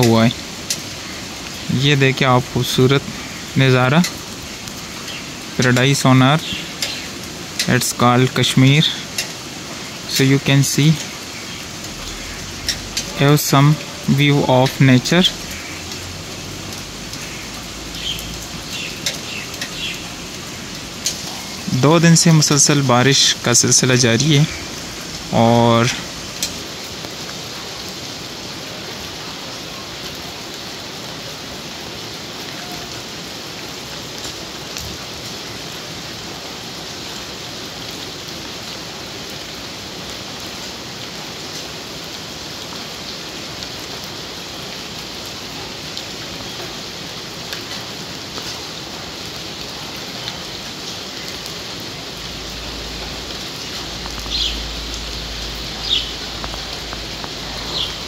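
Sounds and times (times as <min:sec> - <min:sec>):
faint drips: 0:00.0 - 0:27.9, 0:49.6 - 0:58.0
steady rainfall: 0:00.0 - 0:58.0.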